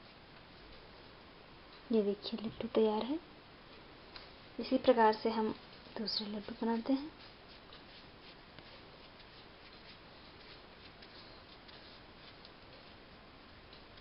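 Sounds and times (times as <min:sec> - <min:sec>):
steady low hiss: 0:00.0 - 0:14.0
hands rustling crumbly mixture: 0:05.3 - 0:13.0.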